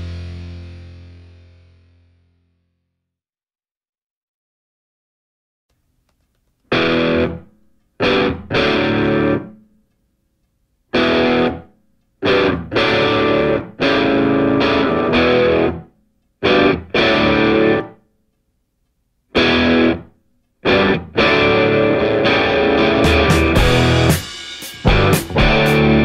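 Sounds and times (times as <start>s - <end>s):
distorted electric guitar chords: 0.0s - 2.4s, 6.7s - 9.6s, 10.9s - 18.0s, 19.4s - 26.0s.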